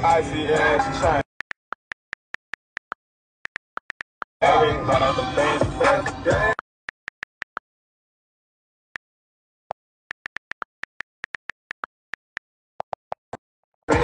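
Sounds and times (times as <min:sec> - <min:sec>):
hip hop music: 0:00.0 - 0:01.3, 0:04.4 - 0:06.6
phone keyboard clicks: 0:01.3 - 0:04.4, 0:06.9 - 0:07.6, 0:09.9 - 0:13.4.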